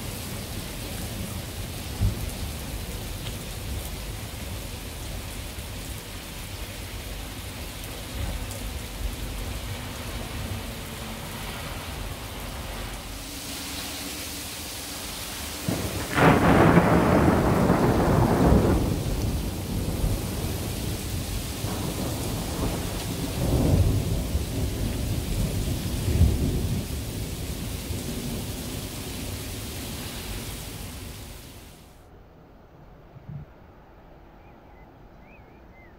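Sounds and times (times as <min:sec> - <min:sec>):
rain hissing: 0:00.0 - 0:32.0
thunder rumbling: 0:14.4 - 0:31.2.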